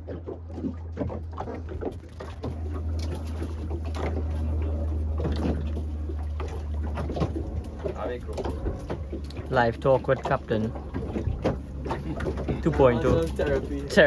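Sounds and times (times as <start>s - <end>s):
boat engine low rumble: 0.0s - 14.0s
water slapping against hull: 0.0s - 14.0s
knocks on boat: 5.1s - 14.0s.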